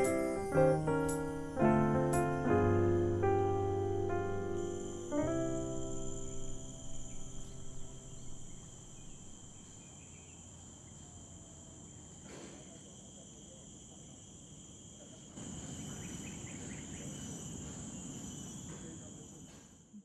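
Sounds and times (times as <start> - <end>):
low rumbling noise: 0.0 - 9.6
insects droning: 0.0 - 20.0.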